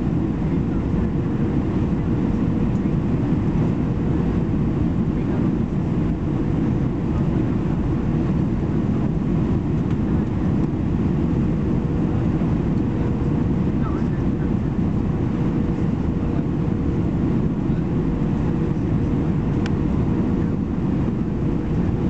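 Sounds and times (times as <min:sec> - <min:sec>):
airplane cabin roar: 0:00.0 - 0:22.0.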